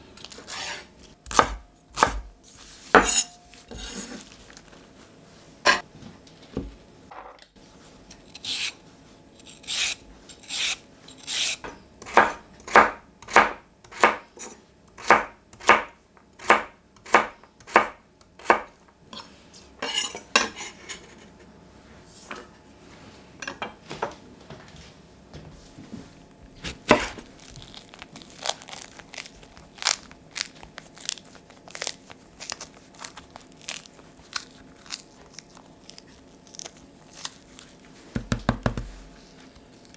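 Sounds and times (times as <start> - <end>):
knife chopping on wooden board: 0.5 - 2.3, 12.0 - 14.2, 15.0 - 18.7, 26.6 - 27.2, 38.2 - 39.0.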